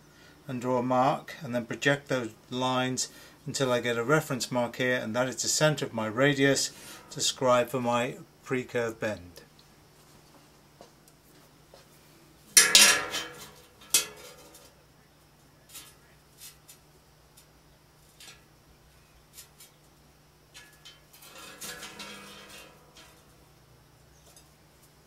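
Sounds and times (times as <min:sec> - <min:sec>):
metal rule clattering on tin plate: 0:12.6 - 0:14.7, 0:20.5 - 0:23.3
rule scraping on metal plate: 0:20.6 - 0:23.3.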